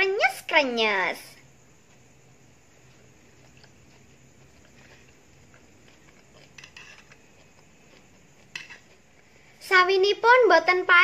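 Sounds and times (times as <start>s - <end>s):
chewing crunchy vegetables: 1.8s - 9.4s
metal spoon scraping plastic plate: 6.4s - 7.2s.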